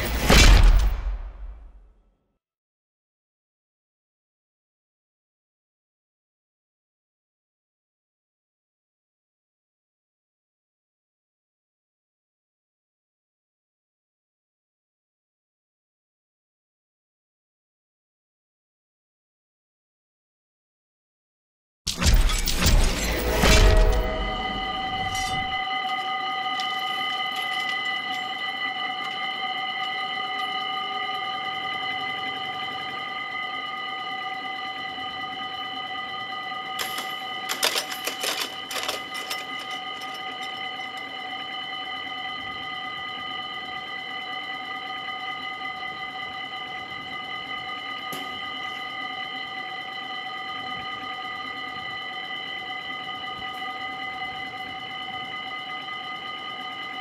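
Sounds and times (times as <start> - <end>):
level crossing warning bells: 22.1 - 57.0.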